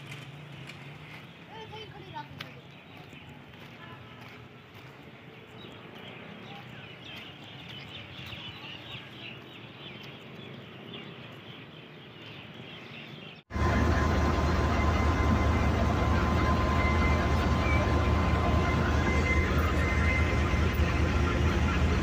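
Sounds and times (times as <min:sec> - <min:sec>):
diesel locomotive engine: 0:00.0 - 0:10.6, 0:13.3 - 0:22.0
small birds chirping: 0:00.2 - 0:13.5
thin steady whine: 0:13.5 - 0:22.0.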